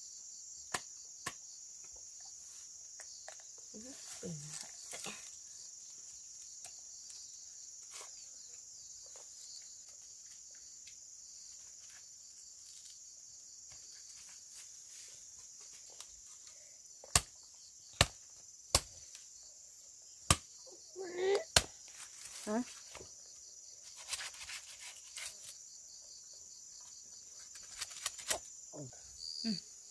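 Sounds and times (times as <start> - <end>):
crickets chirring: 0.0 - 29.9
leaves rustling: 3.8 - 6.5, 21.5 - 23.2, 23.8 - 25.6, 27.4 - 28.5
machete chopping into stalk: 17.0 - 17.3, 18.0 - 19.0, 20.3 - 20.5, 21.5 - 21.8.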